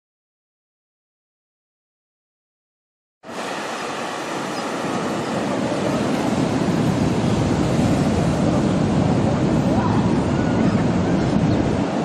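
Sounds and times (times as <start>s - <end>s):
ocean surf breaking on a beach: 3.2s - 12.0s.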